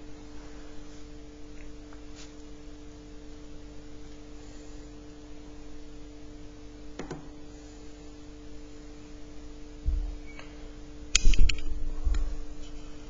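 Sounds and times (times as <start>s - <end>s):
steady low hum: 0.0s - 13.0s
sharp clicks and knocks: 11.1s - 12.2s.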